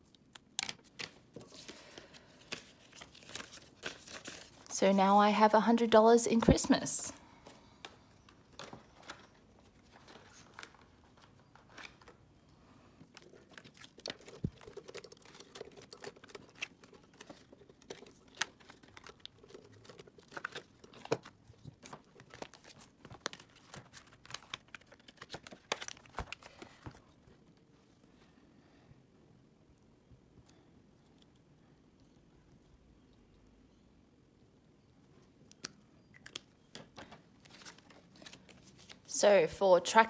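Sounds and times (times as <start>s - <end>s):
paper rustling with sharp ticks: 0.1s - 4.7s, 13.0s - 27.0s.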